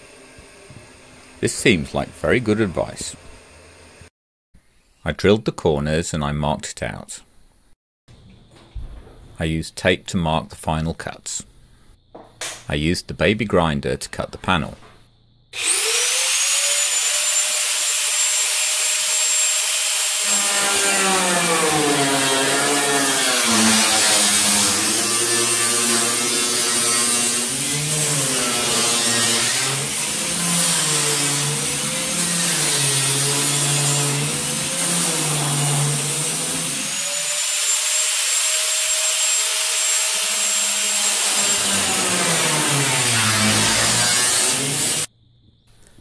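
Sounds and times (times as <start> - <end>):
angle grinder cutting steel: 15.6 - 45.1.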